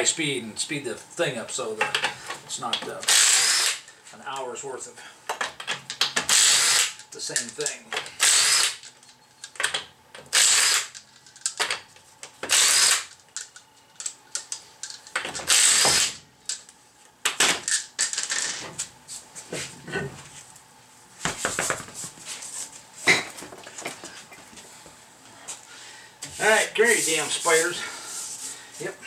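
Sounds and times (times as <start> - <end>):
impact wrench spinning: 3.1 - 3.8, 6.0 - 7.0, 8.2 - 8.9, 10.3 - 11.6, 12.4 - 13.2, 15.3 - 16.2.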